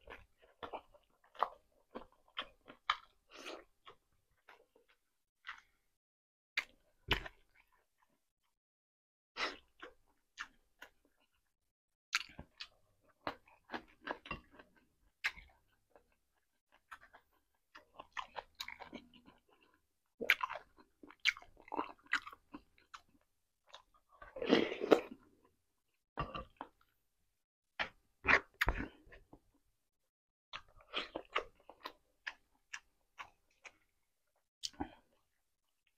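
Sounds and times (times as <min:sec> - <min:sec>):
person chewing: 0:00.0 - 0:05.8, 0:12.1 - 0:25.5, 0:27.8 - 0:29.4, 0:30.6 - 0:34.0, 0:34.6 - 0:35.9.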